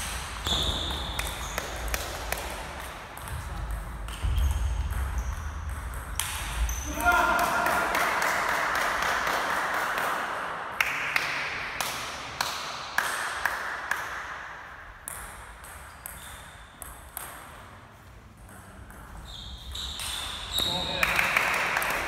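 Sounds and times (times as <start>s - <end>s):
table tennis ball bouncing: 0.0s - 6.8s, 15.0s - 17.7s, 18.4s - 22.0s.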